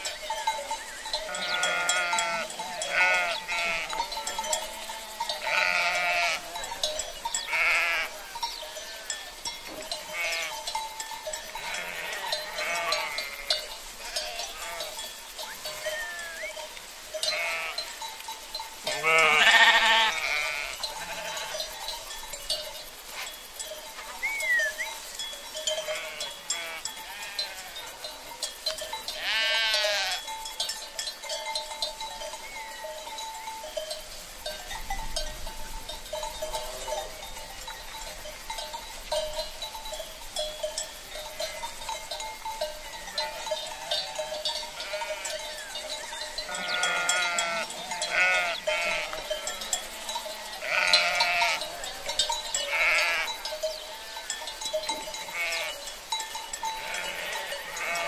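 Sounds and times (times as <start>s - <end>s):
sheep bleating: 1.2s - 4.1s, 4.7s - 6.6s, 7.5s - 9.2s, 10.0s - 10.6s, 11.6s - 15.0s, 17.2s - 17.9s, 18.9s - 21.6s, 25.8s - 27.8s, 29.2s - 30.2s, 43.2s - 45.7s, 46.5s - 53.4s, 55.2s - 55.8s, 56.8s - 58.0s.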